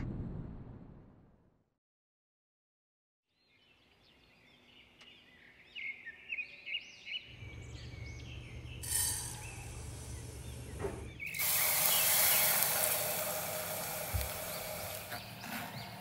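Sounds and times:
hiss: 8.8s - 10.6s, 11.2s - 15.2s.

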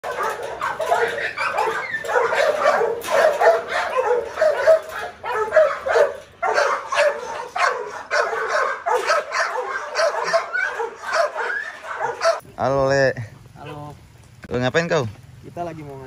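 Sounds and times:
dogs barking and yipping: 0.0s - 12.4s.

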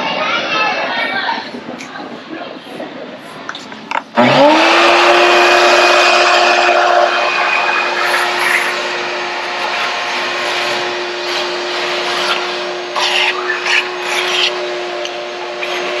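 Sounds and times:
air rushing through hose: 1.4s - 16.0s
shop vacuum motor whining: 3.5s - 16.0s.

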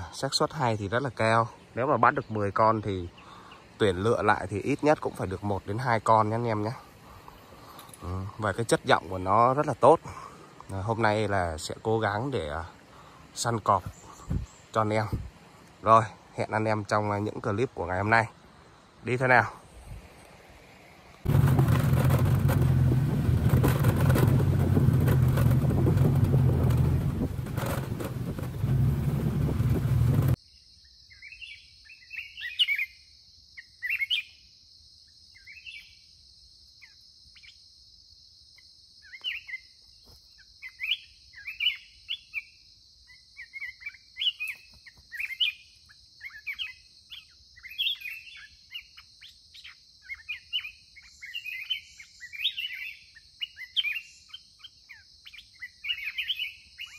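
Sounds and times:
birds chirping: 0.0s - 33.0s, 39.0s - 56.9s
wind noise: 14.2s - 15.4s, 21.2s - 30.4s
motorbike engine running: 21.3s - 30.4s.

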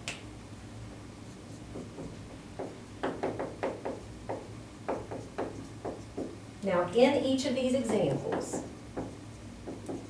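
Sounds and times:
marker writing on whiteboard: 1.3s - 6.4s, 7.8s - 10.0s.

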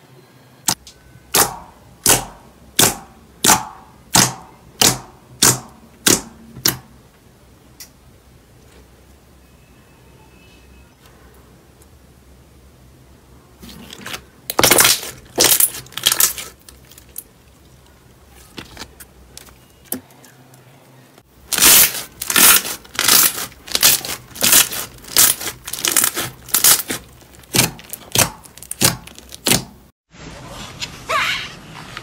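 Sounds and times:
slime squishing by hand: 13.6s - 20.3s, 21.4s - 29.9s.

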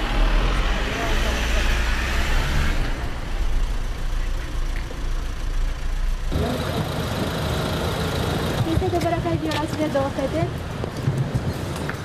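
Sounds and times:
street noise: 0.0s - 12.0s
vehicle engine idling: 3.2s - 9.6s.

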